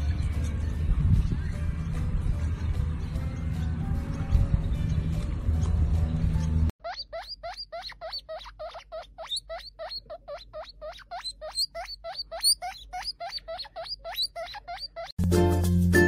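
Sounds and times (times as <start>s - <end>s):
guinea pig wheeking: 6.4s - 15.2s.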